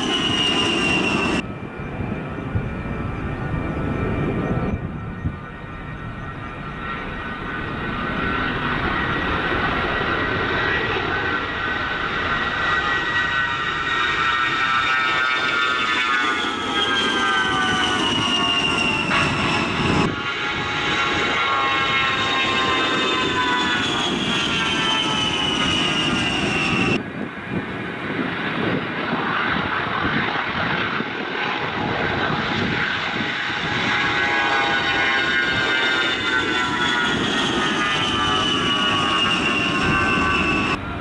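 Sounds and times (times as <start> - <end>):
jet engine whine: 0.0 - 41.0.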